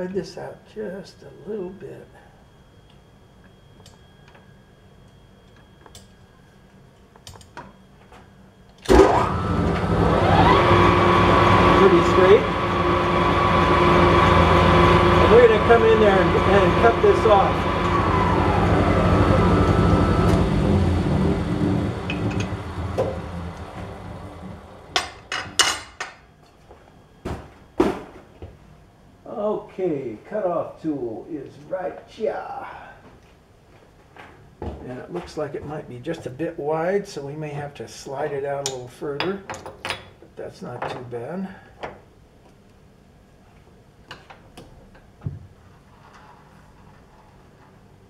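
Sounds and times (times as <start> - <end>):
lathe running: 8.9 - 25.4.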